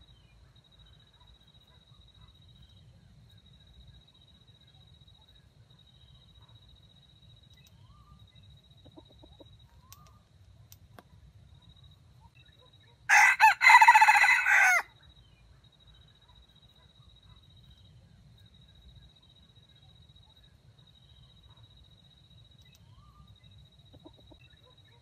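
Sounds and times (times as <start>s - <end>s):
rooster crowing: 13.1s - 14.9s.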